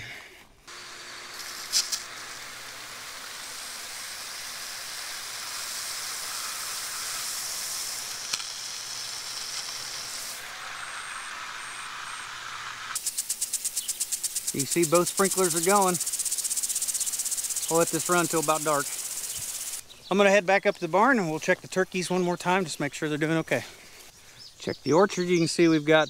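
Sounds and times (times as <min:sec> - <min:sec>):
water pump humming: 0:00.6 - 0:19.8
water spraying and hissing: 0:00.7 - 0:19.8.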